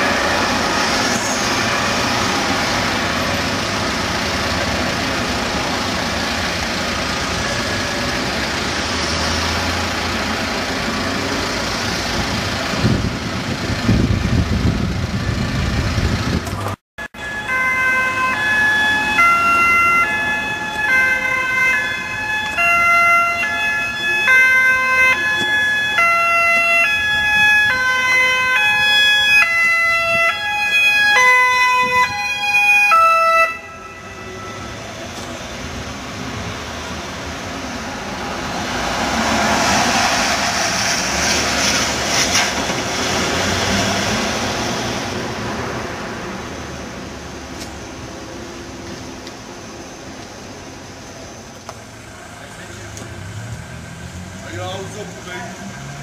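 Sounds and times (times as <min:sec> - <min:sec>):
two-tone emergency sirens: 0:00.0 - 0:11.2, 0:17.0 - 0:41.4
heavy vehicle passing: 0:00.0 - 0:16.8, 0:32.9 - 0:48.8, 0:51.8 - 0:56.0
street traffic: 0:00.0 - 0:56.0.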